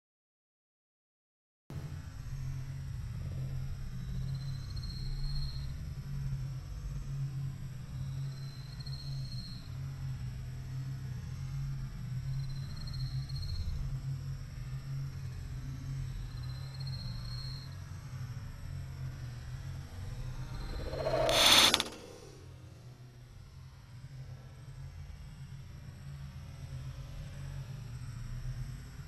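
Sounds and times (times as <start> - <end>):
steady low hum: 18.4 - 22.6.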